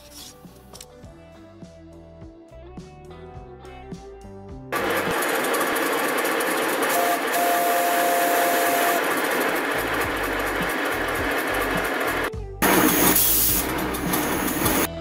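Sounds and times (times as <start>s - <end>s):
steam locomotive hissing: 4.8s - 14.9s.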